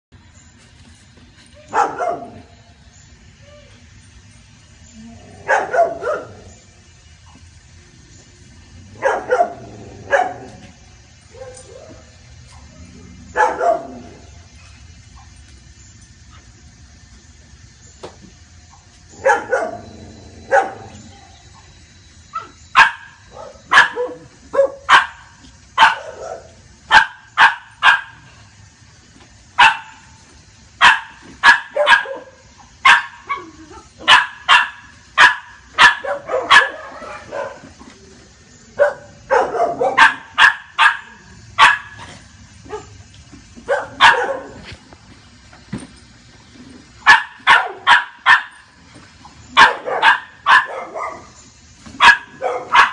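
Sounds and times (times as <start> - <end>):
dog barking: 1.7 - 2.4, 5.5 - 6.4, 9.0 - 10.5, 13.4 - 14.0, 19.2 - 19.9, 20.5 - 20.9, 22.8 - 28.2, 29.6 - 30.0, 30.8 - 37.6, 38.8 - 42.0, 43.7 - 44.6, 47.1 - 48.6, 49.6 - 51.3, 52.0 - 52.9.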